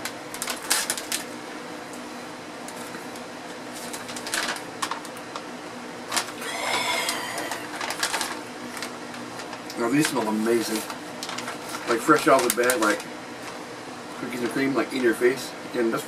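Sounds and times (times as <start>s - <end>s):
plastic packaging crinkling: 0.0s - 1.3s, 3.7s - 5.4s, 6.1s - 13.6s
low room hum: 0.0s - 16.0s
plastic packaging tearing: 0.3s - 1.3s, 3.8s - 5.4s, 6.1s - 13.1s.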